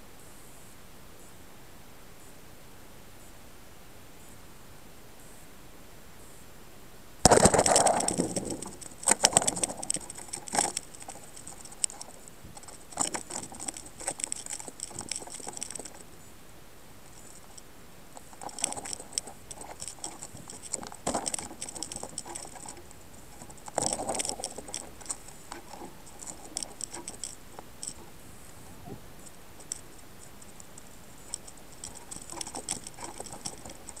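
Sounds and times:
faint steady hiss: 0.0 - 34.0
camera fittings clicking and rattling: 7.3 - 16.1, 17.1 - 28.1, 29.2 - 34.0.

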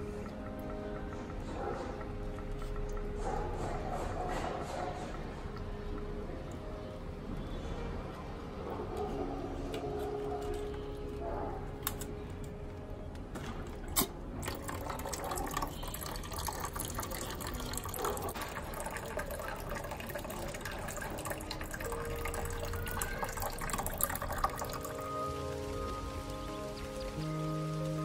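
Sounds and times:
water running and splashing: 14.4 - 28.0.

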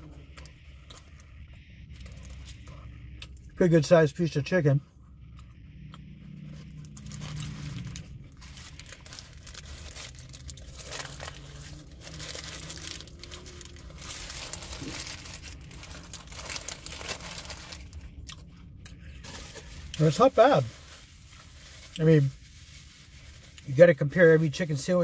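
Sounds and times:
paper wrapper crinkling: 6.6 - 18.0, 19.2 - 23.8.

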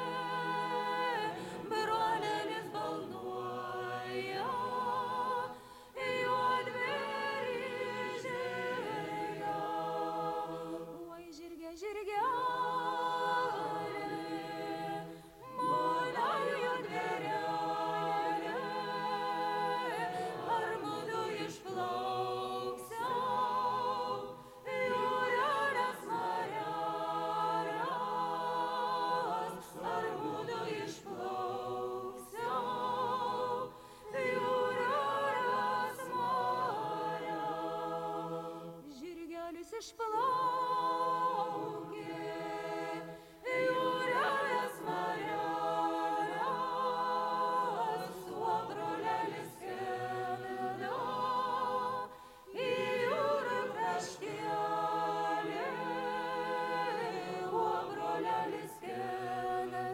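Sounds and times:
choir singing folk song: 0.0 - 59.9.

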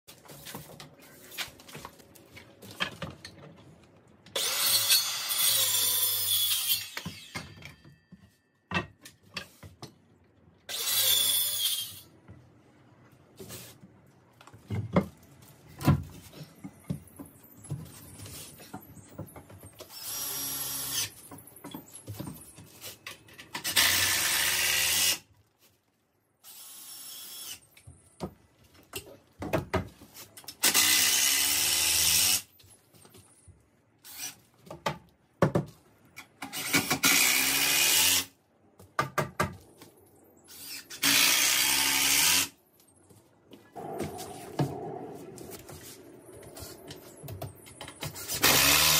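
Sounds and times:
cordless drill driving screws: 48.3 - 48.9.

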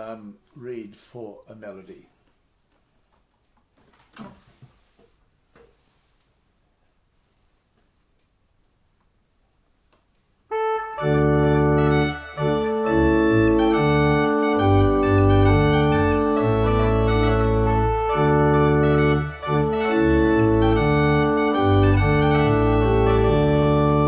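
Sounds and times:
church organ playing slow melody: 10.5 - 24.0.

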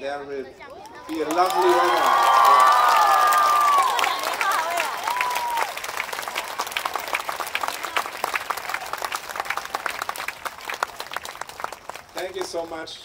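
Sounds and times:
crowd cheering: 0.8 - 12.1
crowd applauding: 1.0 - 13.0.

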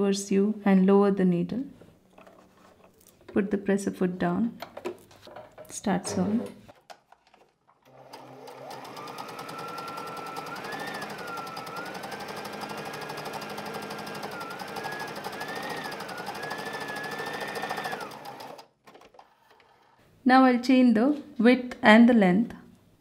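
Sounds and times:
sewing machine running: 7.8 - 20.0.

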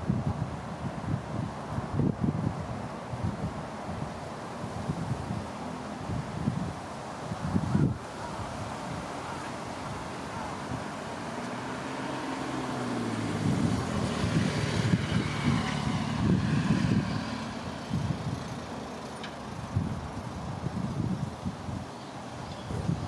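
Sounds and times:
vehicle engine passing by: 8.3 - 20.0.

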